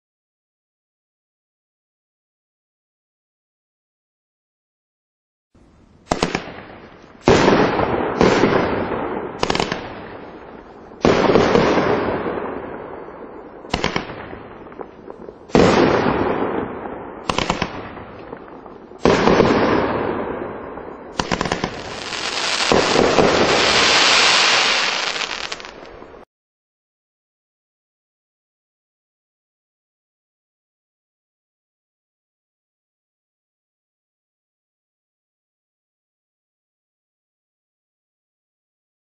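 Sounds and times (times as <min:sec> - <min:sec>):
firework shots firing: 0:06.0 - 0:10.4, 0:11.0 - 0:12.7, 0:13.7 - 0:20.2, 0:21.1 - 0:26.2
dense firework crackle: 0:06.1 - 0:26.3.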